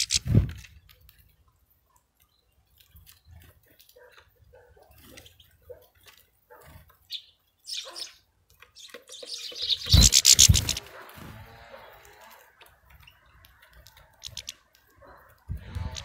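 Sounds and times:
short high bird chirps: 9.2 - 10.9
rapid bird wingbeats: 9.8 - 12.1
seed husking clicks: 12.0 - 16.0.

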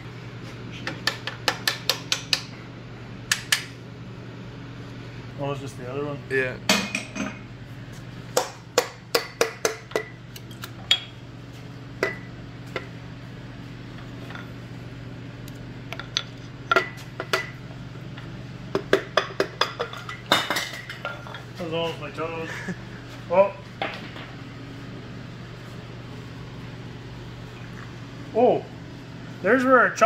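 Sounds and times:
steady low hum: 0.0 - 30.0
hammer tapping metal: 1.0 - 2.5, 8.4 - 10.2.

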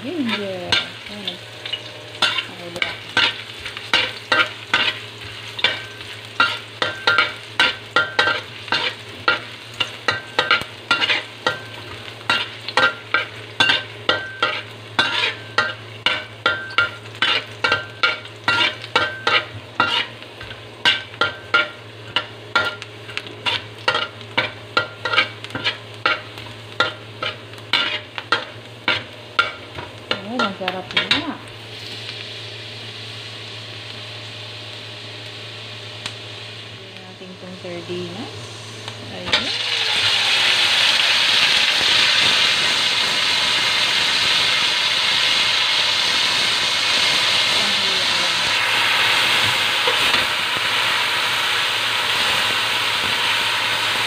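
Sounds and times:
ginger sizzling in hot oil: 0.0 - 54.0
metal spoon scraping a pan: 0.2 - 31.4.

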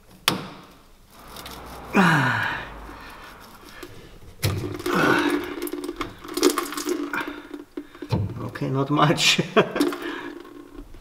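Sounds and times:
steady low hum: 1.0 - 7.5.

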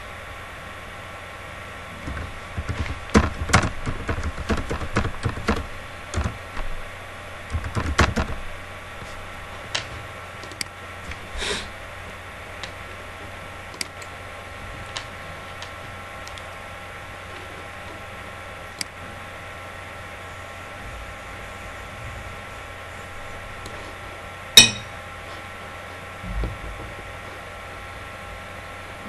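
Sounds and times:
steady hiss and hum: 0.0 - 29.0.

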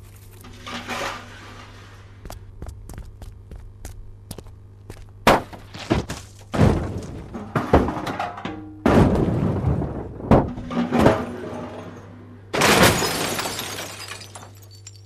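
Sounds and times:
low steady hum: 0.0 - 15.0
loud crashes and smashing: 5.3 - 14.9.

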